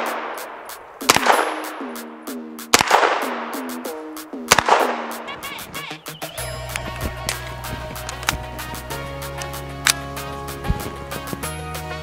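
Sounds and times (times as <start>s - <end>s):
carbine gunshots: 0.0s - 1.9s, 2.7s - 3.7s, 4.5s - 5.3s
background music with steady beat: 0.0s - 12.0s.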